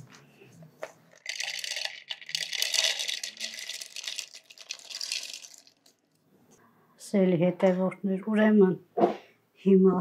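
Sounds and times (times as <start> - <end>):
nuts clattering into plastic bowl: 1.1 - 6.2.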